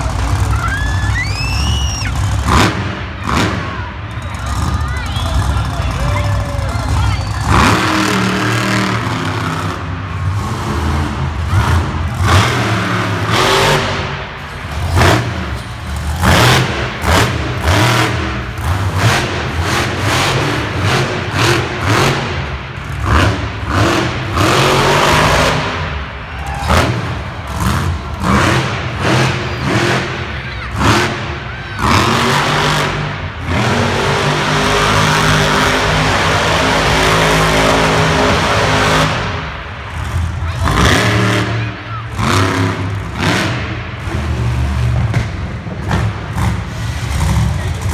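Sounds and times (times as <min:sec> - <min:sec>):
monster truck engines revving: 0:00.0 - 0:47.9.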